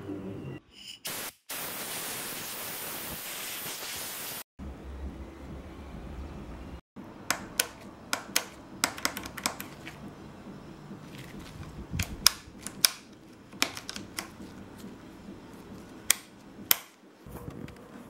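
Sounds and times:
plastic switches clicking: 7.3s - 9.7s, 12.0s - 14.3s.

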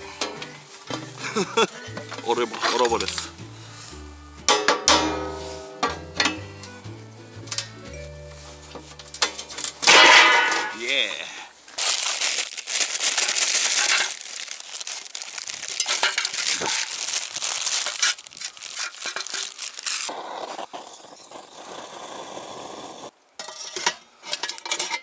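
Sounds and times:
plastic wrapper crinkling: 11.7s - 20.1s.

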